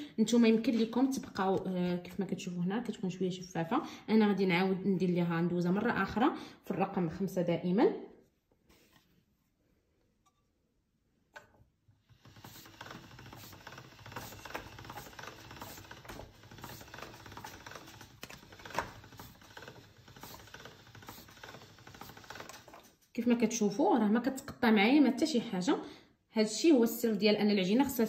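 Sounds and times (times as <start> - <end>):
pasta machine crank clicking: 12.0 - 22.9.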